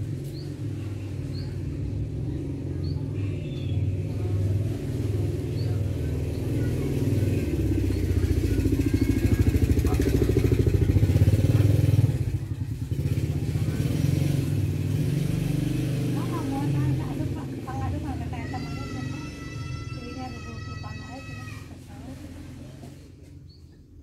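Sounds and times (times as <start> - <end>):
small engine running: 4.2 - 23.3.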